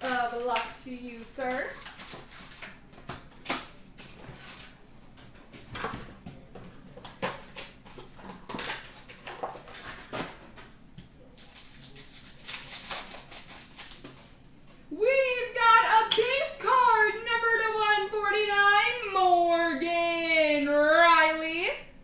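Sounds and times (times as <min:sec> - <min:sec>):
card pack wrappers crinkling: 0:01.4 - 0:04.8, 0:11.3 - 0:14.4.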